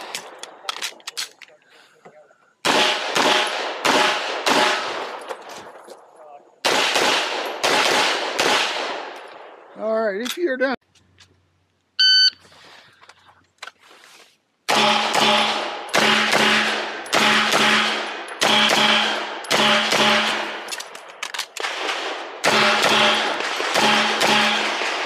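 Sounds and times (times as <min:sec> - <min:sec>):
pistol shots echoing: 0:02.6 - 0:05.3, 0:06.6 - 0:09.6, 0:14.7 - 0:25.0.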